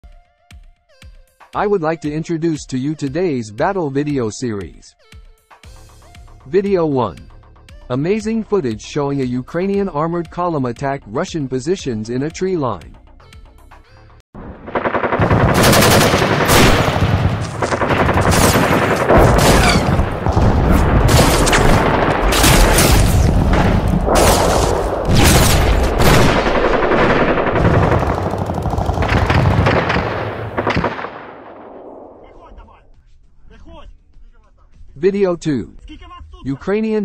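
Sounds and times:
heavy automatic gunfire: 14.4s - 32.3s.

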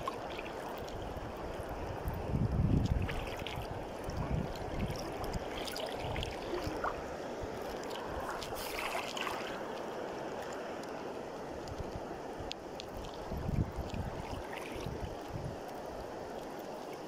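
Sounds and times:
river water rushing: 0.0s - 17.0s
faint ticks: 10.3s - 14.0s.

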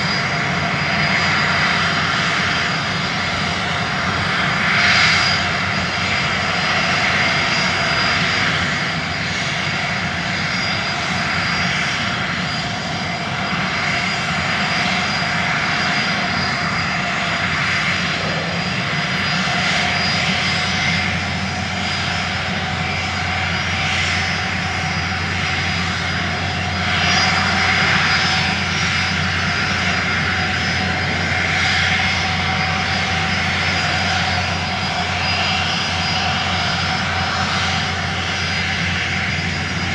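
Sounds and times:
drone propeller whine: 0.0s - 39.9s
rushing air: 16.2s - 35.0s.

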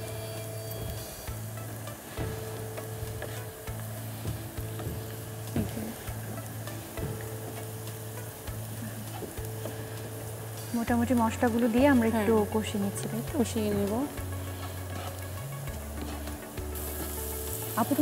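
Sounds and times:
onions sizzling in oil: 0.0s - 18.0s
wooden spatula scraping a pan: 2.2s - 4.2s, 14.4s - 17.5s.

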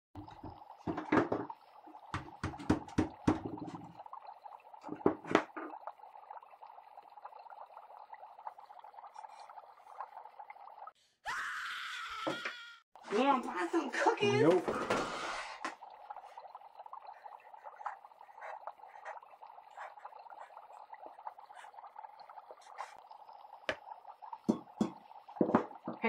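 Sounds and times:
objects knocking and clattering: 0.2s - 3.9s, 4.8s - 5.8s, 24.5s - 26.0s.

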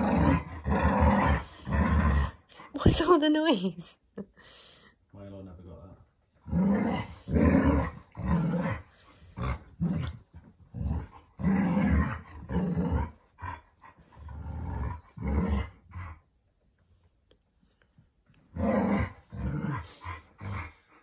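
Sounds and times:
dogs growling in play: 0.0s - 3.0s, 6.3s - 16.4s, 18.4s - 21.0s.

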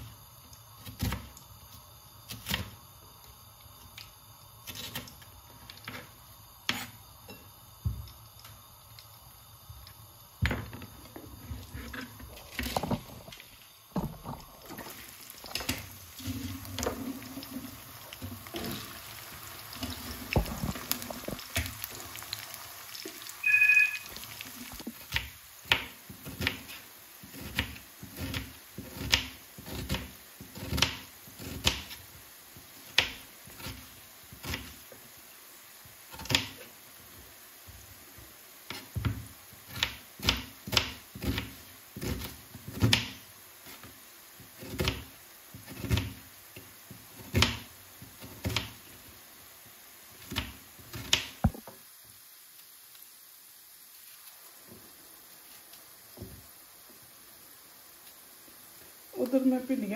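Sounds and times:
okra sizzling in oil: 0.0s - 59.9s
two-tone beep: 23.4s - 24.2s.

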